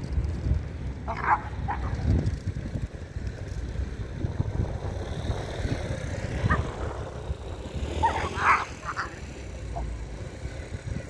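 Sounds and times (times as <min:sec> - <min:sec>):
city traffic rumble: 0:00.0 - 0:11.0
wind on microphone: 0:00.0 - 0:11.0
dog yelping: 0:01.1 - 0:02.0, 0:07.9 - 0:09.9.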